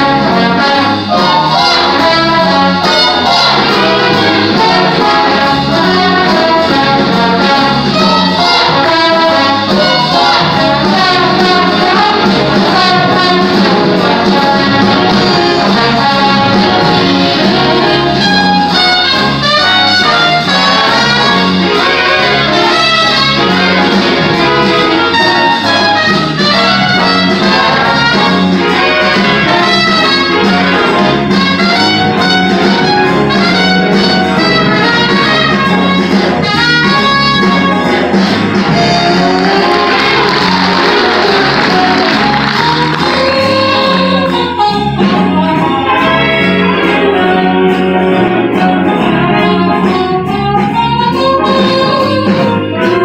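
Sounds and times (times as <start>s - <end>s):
big band jazz: 0.0s - 53.0s.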